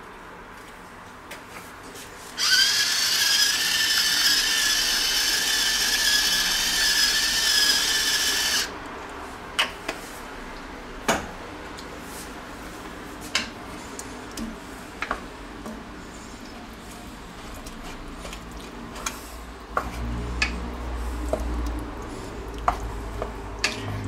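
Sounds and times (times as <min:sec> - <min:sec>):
spoon stirring thick sauce: 0:13.9 - 0:24.0.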